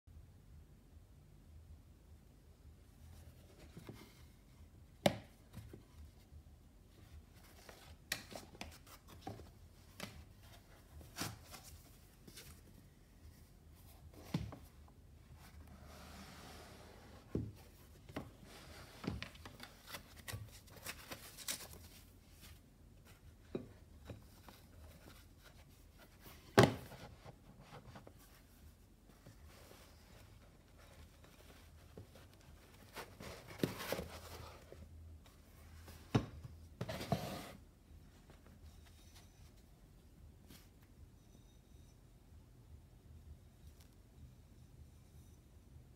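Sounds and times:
soft rustling: 5.4s - 40.9s.

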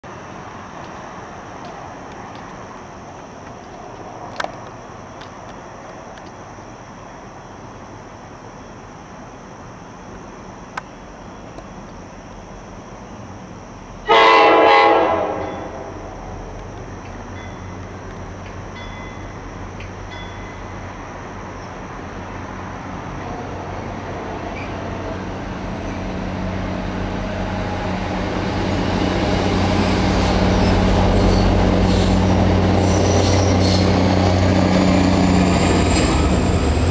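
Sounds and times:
train rumble passing: 0.0s - 36.9s
train horn blast: 14.0s - 16.1s.

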